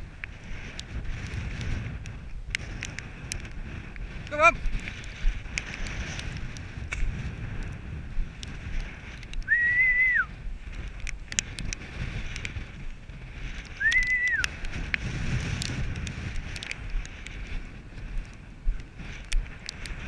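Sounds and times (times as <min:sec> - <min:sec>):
wind rumble on microphone: 0:00.0 - 0:20.0
person whistling: 0:09.5 - 0:10.3, 0:13.8 - 0:14.4.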